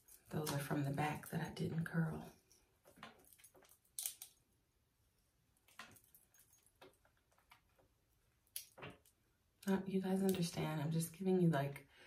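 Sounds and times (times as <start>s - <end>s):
handling clicks and rustles: 2.4s - 4.4s.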